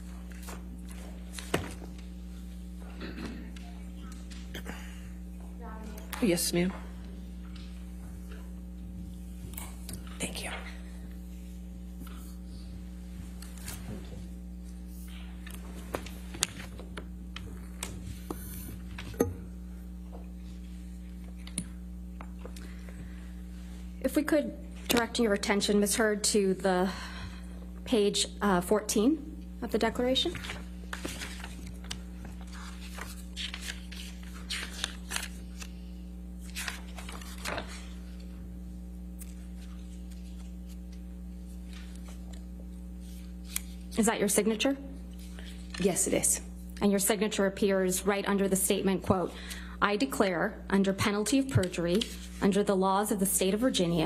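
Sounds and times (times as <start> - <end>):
steady electrical hum: 0.0 - 54.0
paper clicks and rustles: 30.3 - 35.8, 36.4 - 38.3, 39.1 - 43.9.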